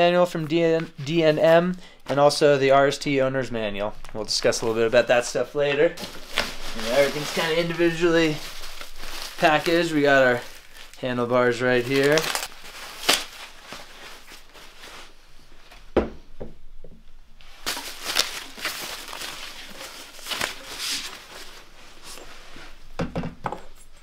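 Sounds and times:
plastic bag crinkling: 0.6s - 15.2s, 17.5s - 22.2s.

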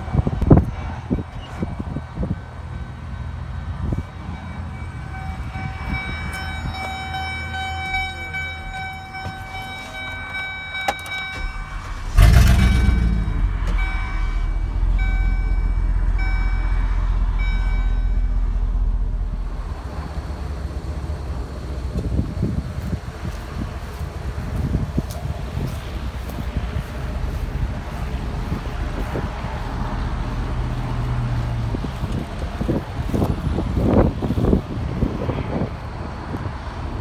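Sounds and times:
truck engine starting and idling: 0.0s - 37.0s
dashboard warning chime: 1.4s - 18.7s.

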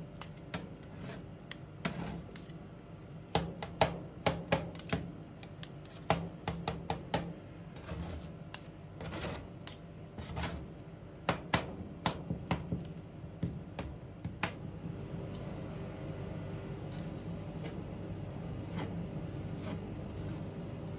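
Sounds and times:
low steady hum: 0.0s - 20.9s
spatulas scraping: 0.2s - 2.6s, 7.7s - 10.7s, 16.8s - 20.8s.

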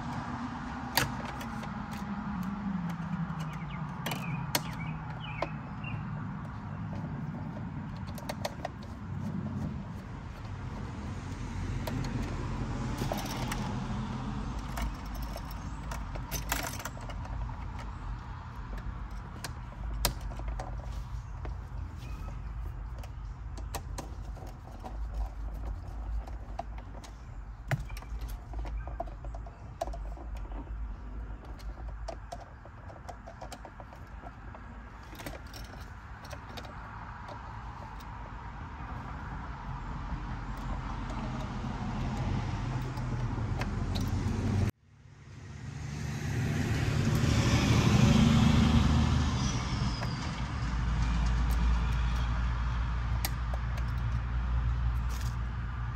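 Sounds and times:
screwdriver clicks and metallic clinks: 11.8s - 38.2s, 53.1s - 54.3s, 54.9s - 55.5s
vehicle passing: 36.9s - 53.1s.

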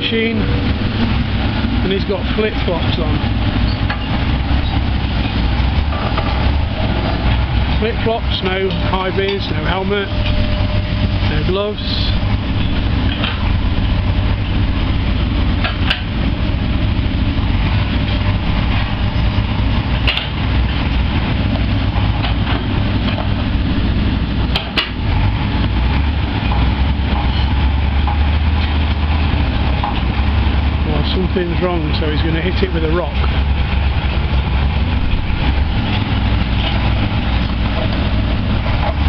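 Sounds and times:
diesel excavator engine idling: 0.0s - 39.0s.

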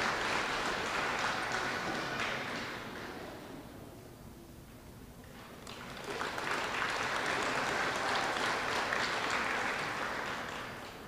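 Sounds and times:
audience applauding: 0.0s - 3.1s, 5.6s - 11.0s.

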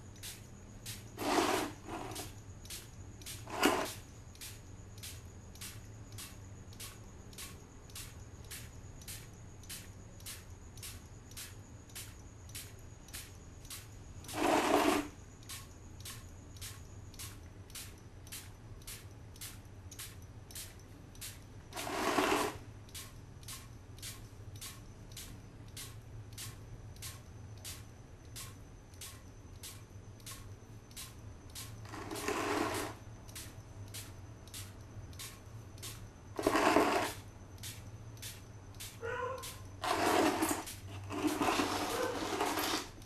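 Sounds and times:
spray gun hiss: 0.0s - 7.0s, 21.3s - 24.8s, 31.0s - 39.6s
mechanical clicking: 4.4s - 32.5s, 33.2s - 36.6s.

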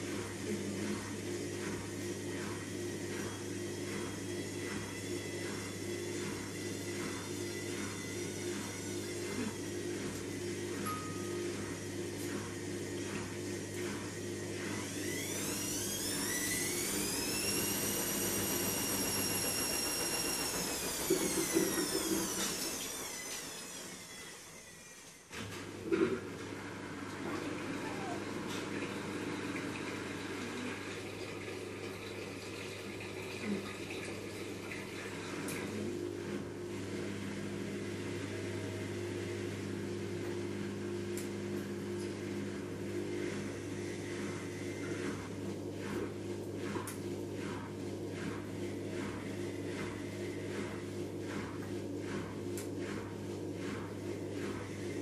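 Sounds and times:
low mechanical hum: 0.0s - 55.0s
small motor high-pitched whine: 2.8s - 25.6s, 27.2s - 29.5s.

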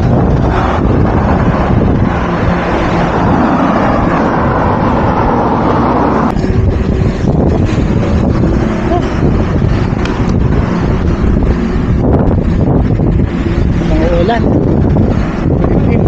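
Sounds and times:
car traffic passing: 0.0s - 16.0s
wind rushing over microphone: 0.0s - 16.0s.

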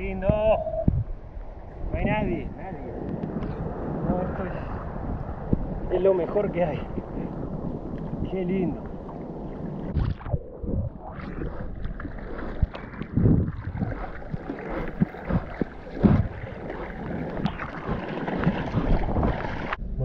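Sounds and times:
wind on microphone: 0.0s - 20.0s
seawater splashing against surfboard: 8.9s - 19.8s.

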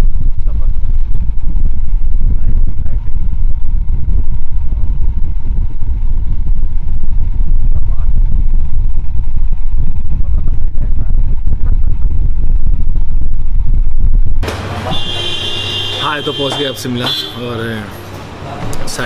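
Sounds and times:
wind on microphone: 0.0s - 14.4s
motorcycle engine running: 0.0s - 19.0s.

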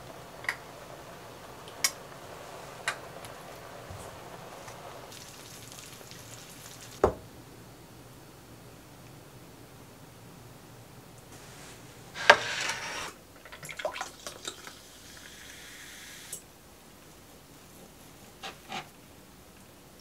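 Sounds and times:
sparkling water poured fizzing: 0.0s - 7.1s, 11.4s - 16.4s.

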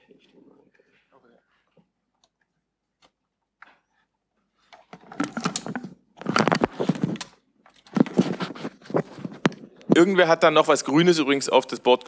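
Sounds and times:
microphone handling noise: 5.1s - 7.3s, 7.9s - 10.1s.

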